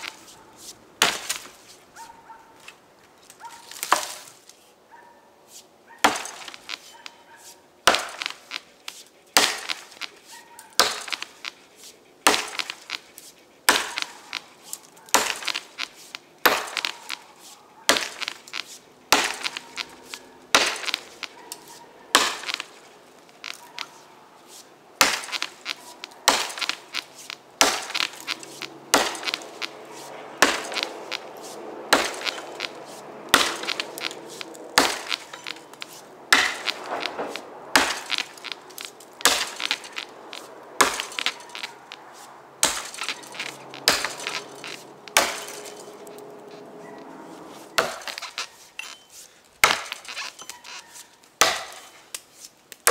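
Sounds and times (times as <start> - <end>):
axe chopping into log: 1.0 - 1.5, 6.0 - 6.5, 7.9 - 8.4, 9.4 - 9.9, 10.8 - 11.2, 13.7 - 14.0, 16.4 - 17.0, 19.1 - 19.6, 20.5 - 21.0, 22.2 - 22.6, 25.0 - 25.4, 26.3 - 26.8, 27.6 - 28.2, 28.9 - 29.4, 30.4 - 30.8, 31.9 - 33.8, 34.8 - 35.4, 36.3 - 38.5, 39.2 - 41.6, 42.6 - 45.8, 47.8 - 48.3, 49.6 - 50.2, 51.4 - 51.9.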